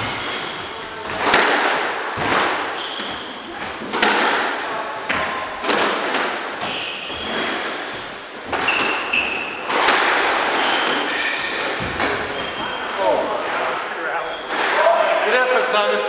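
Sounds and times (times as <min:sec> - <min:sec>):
shoes squeaking on wooden floor: 0:00.0 - 0:05.9, 0:06.5 - 0:14.9
squash ball hits echoing: 0:00.0 - 0:13.0.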